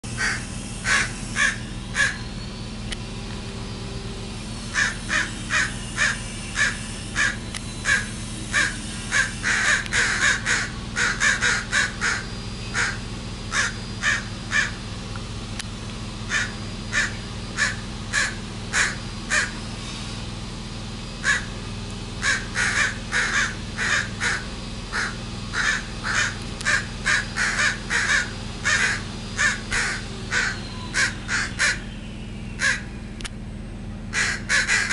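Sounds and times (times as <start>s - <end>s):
crows cawing: 0.2s - 2.3s, 4.7s - 14.9s, 16.3s - 19.6s, 21.2s - 21.6s, 22.2s - 32.0s, 32.6s - 33.0s, 34.1s - 34.9s.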